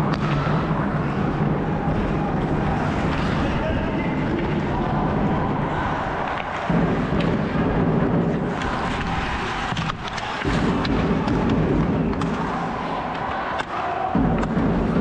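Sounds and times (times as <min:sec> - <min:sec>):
hockey sticks and puck clicking: 0:00.0 - 0:15.0
skates scraping on ice: 0:08.2 - 0:13.0.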